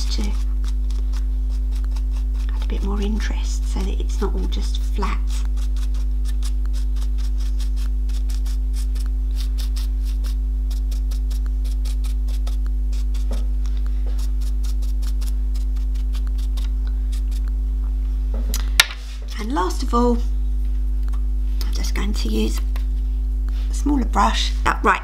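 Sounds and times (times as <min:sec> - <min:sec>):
electrical mains hum: 0:00.0 - 0:25.0
paintbrush scratching strokes: 0:04.8 - 0:17.4.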